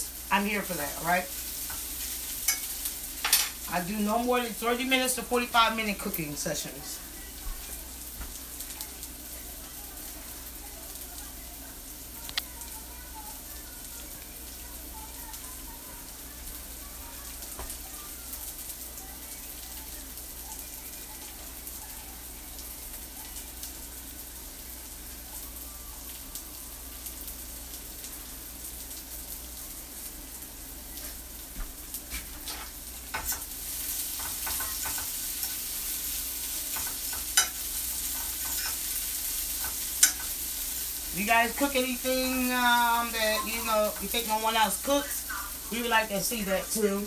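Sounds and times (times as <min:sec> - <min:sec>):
onions sizzling in a pan: 0:00.0 - 0:47.0
fork scraping a pan: 0:32.1 - 0:33.5, 0:36.7 - 0:38.9, 0:39.6 - 0:40.4.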